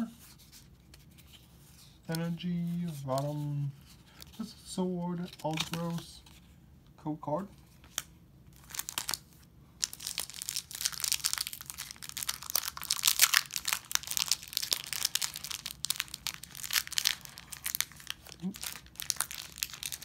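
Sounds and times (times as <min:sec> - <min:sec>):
foil wrapper crinkling: 0:07.9 - 0:20.0.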